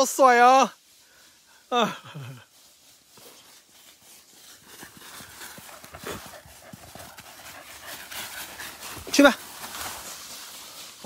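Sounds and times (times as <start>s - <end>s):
dog running on dry leaves: 3.0s - 11.0s.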